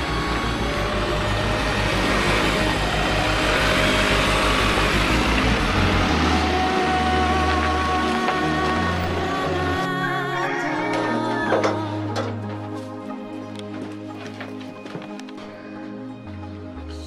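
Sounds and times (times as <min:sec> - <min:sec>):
vehicle engine throbbing: 0:00.0 - 0:10.4.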